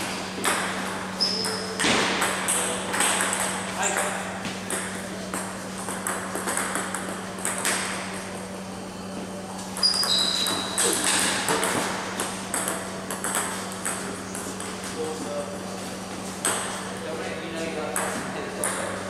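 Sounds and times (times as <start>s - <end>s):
table tennis balls clicking: 0.4s - 8.2s, 9.7s - 14.8s, 16.4s - 16.8s
short high squeaks: 1.2s - 1.7s, 9.8s - 10.9s.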